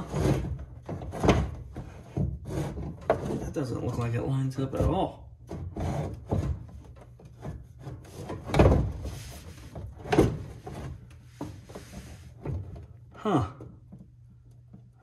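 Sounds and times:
plastic rubbing and scraping: 0.0 - 13.0.

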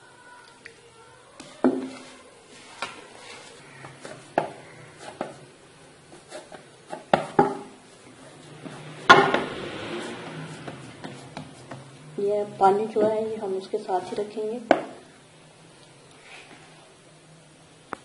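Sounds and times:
hands kneading dough: 1.4 - 15.0.

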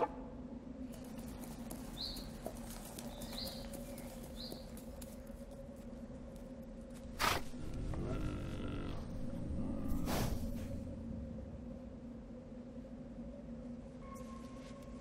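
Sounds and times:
low drone: 5.3 - 15.0.

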